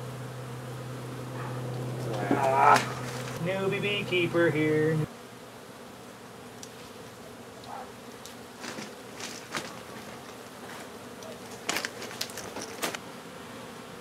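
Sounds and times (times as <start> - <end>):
bees buzzing: 0.0 - 14.0
handling clicks and rustles: 1.4 - 3.4, 7.6 - 13.0.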